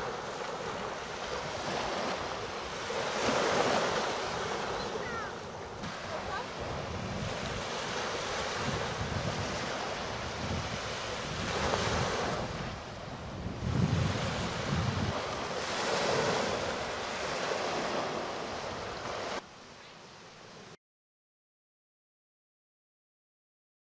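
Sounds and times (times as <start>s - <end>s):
wind buffeting microphone: 0.0s - 19.4s
waves washing on sandy shore: 0.0s - 20.8s.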